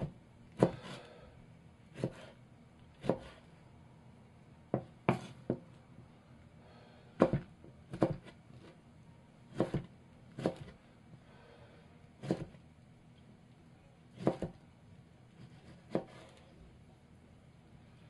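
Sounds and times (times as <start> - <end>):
knife chopping on wooden board: 0.0 - 1.0, 2.0 - 2.4, 3.0 - 3.4, 4.7 - 5.7, 7.2 - 8.7, 9.5 - 10.8, 12.2 - 12.6, 14.2 - 14.6, 15.4 - 16.4.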